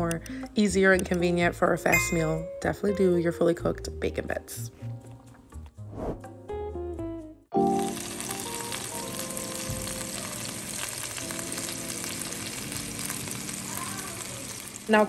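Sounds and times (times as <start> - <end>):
fish fillets sizzling in a pan: 7.7 - 15.0.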